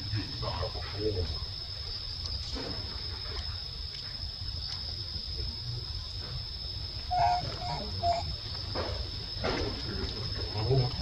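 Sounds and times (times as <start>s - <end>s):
baby monkey squeaky calls: 7.1s - 8.4s.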